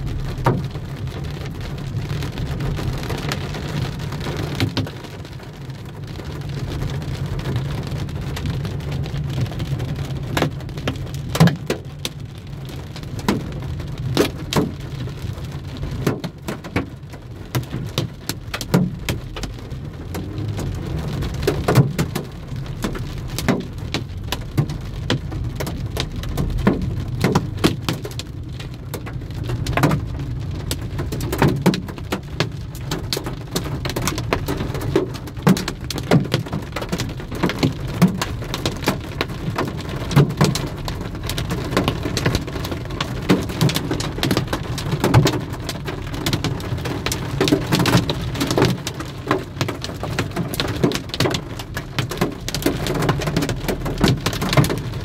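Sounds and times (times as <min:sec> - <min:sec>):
low rumble: 0:00.0 - 0:03.3, 0:18.9 - 0:27.6
heavy rain falling: 0:00.0 - 0:55.0
raindrops ticking close by: 0:00.0 - 0:55.0.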